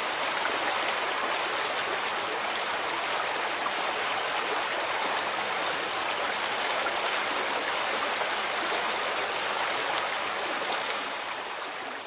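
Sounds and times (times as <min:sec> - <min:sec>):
stream rushing: 0:00.0 - 0:12.0
bird whistled calls: 0:07.7 - 0:08.3, 0:08.9 - 0:09.6, 0:10.6 - 0:10.9.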